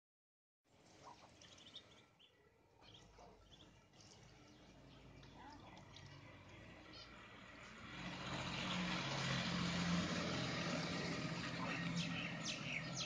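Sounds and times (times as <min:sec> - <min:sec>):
ducklings peeping: 0:00.8 - 0:06.1, 0:10.6 - 0:13.0.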